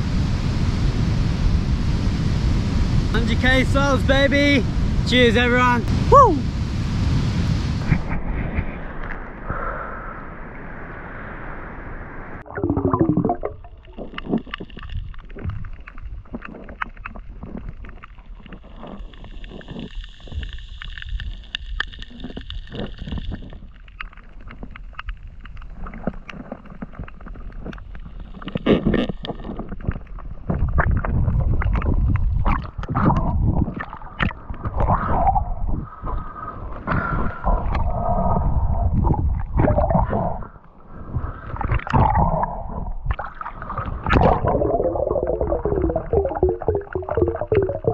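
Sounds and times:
muffled underwater gurgling: 12.4s - 23.8s, 25.7s - 47.9s
water splashing: 12.4s - 35.3s, 41.2s - 47.9s.

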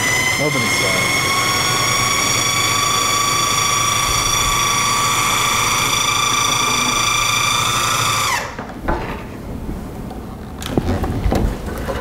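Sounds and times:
food processor motor whine: 0.0s - 8.6s.

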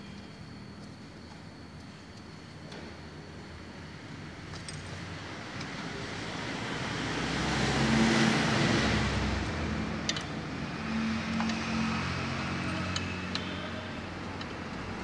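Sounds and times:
motor vehicle passing: 6.6s - 13.3s.

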